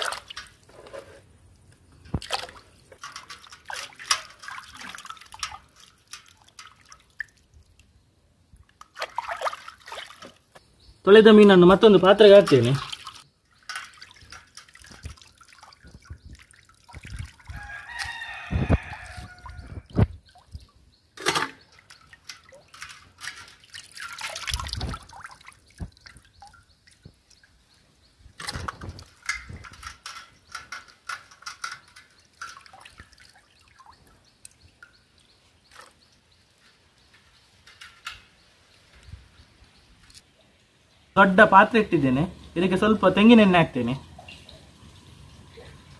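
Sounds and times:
water splashing in a steel bowl: 0.0s - 0.7s, 2.0s - 7.9s, 8.7s - 10.6s, 11.3s - 27.7s, 28.3s - 36.3s.

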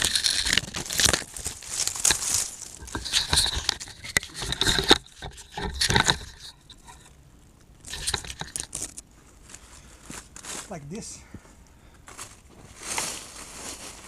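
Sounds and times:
log rustling and scraping on ground: 0.0s - 7.2s, 7.8s - 14.0s
small knocks and cracks: 0.0s - 7.2s, 7.8s - 10.5s.

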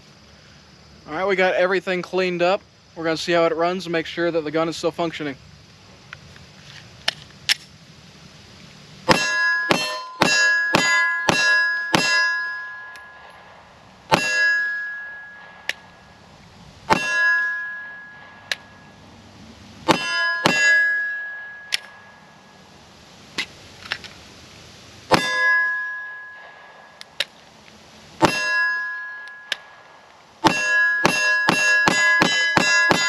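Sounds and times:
steel targets clanging: 9.1s - 16.3s, 16.9s - 19.0s, 19.8s - 22.6s, 25.1s - 27.3s, 28.2s - 33.0s.

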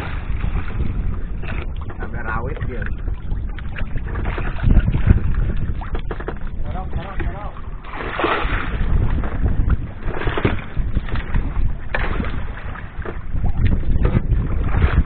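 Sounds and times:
water slapping against boat: 0.0s - 15.0s
wind buffeting microphone: 0.0s - 15.0s.

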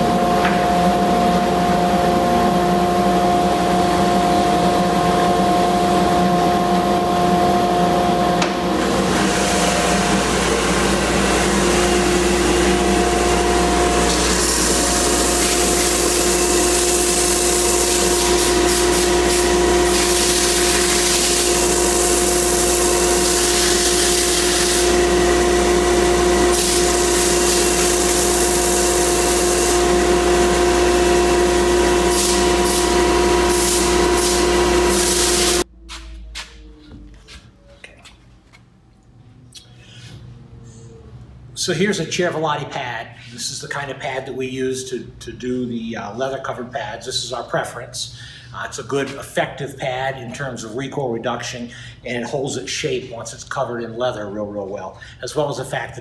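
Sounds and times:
belt sander grinding wood: 8.8s - 35.6s.

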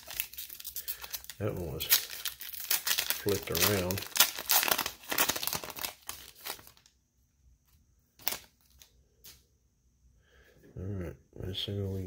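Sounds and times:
foil wrapper crinkling: 0.0s - 6.9s, 8.2s - 8.9s.

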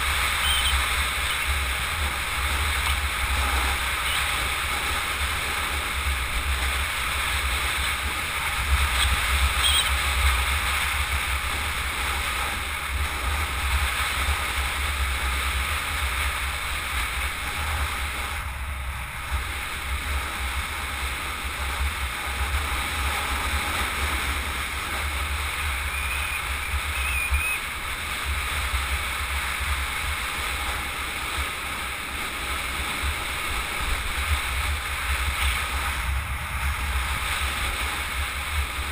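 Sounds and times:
wind buffeting microphone: 0.0s - 38.9s.

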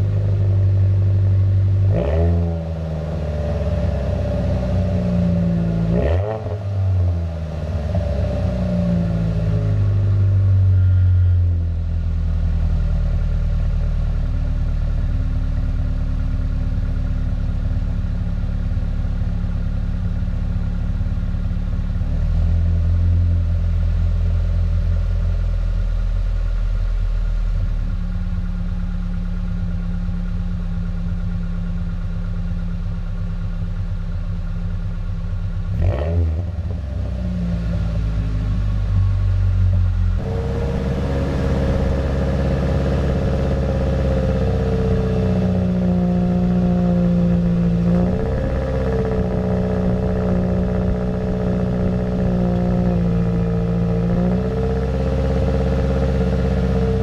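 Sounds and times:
car engine idling at tailpipe: 0.0s - 57.0s
engine revving: 1.8s - 11.4s, 35.7s - 57.0s.

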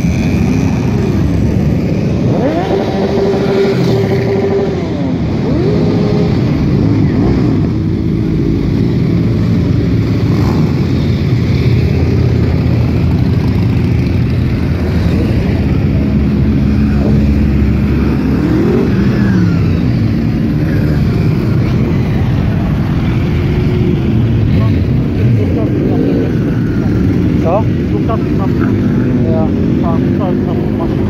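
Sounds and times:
motorcycle engine revving by: 0.0s - 7.8s
motorcycles riding past: 0.0s - 31.0s.

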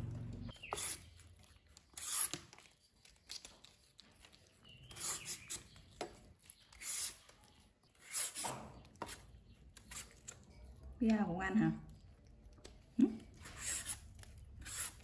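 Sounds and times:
peeler scraping squash skin: 0.1s - 10.5s, 13.2s - 15.0s.

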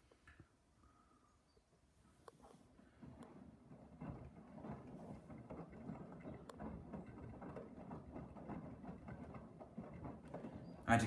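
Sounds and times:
washing machine sloshing: 2.8s - 11.0s.

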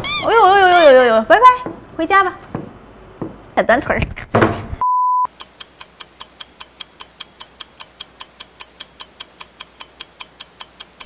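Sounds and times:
steady test tone beep: 4.8s - 5.4s
clock ticking: 5.3s - 11.0s.

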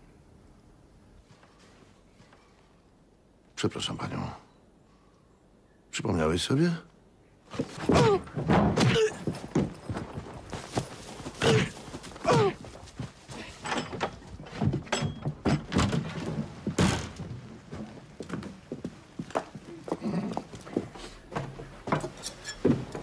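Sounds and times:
knocks and thuds: 7.5s - 10.6s, 11.4s - 18.1s.

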